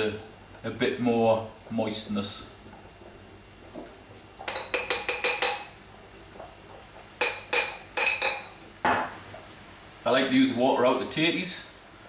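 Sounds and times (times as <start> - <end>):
metal spoon clinking on mug: 4.4 - 5.7.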